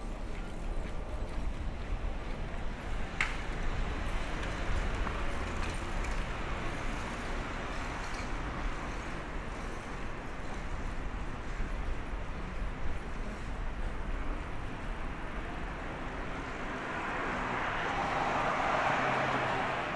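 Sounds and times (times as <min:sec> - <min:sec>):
traffic noise with low rumble: 0:00.0 - 0:19.9.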